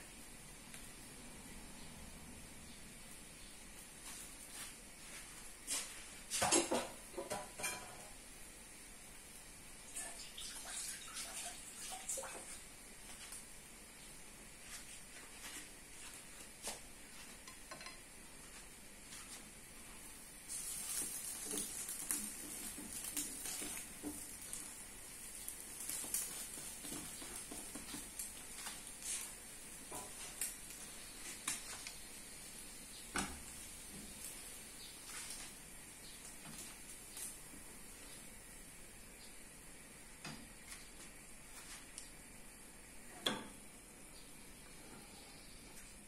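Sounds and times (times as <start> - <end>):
food sizzling in frying pans: 3.0 - 44.2
chopsticks tapping pans: 17.4 - 18.1.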